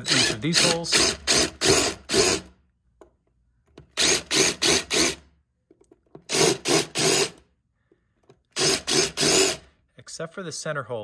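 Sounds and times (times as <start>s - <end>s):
drill bit grinding fiberglass: 8.6s - 9.6s.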